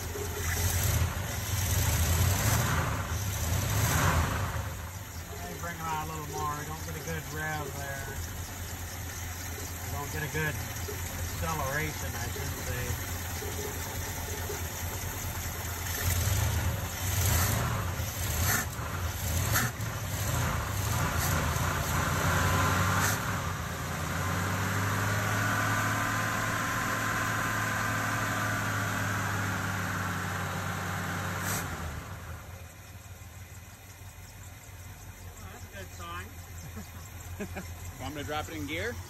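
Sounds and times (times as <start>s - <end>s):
car engine idling unevenly: 0.0s - 39.0s
man talking: 5.2s - 8.4s, 9.8s - 13.1s, 35.3s - 36.4s, 37.9s - 39.0s.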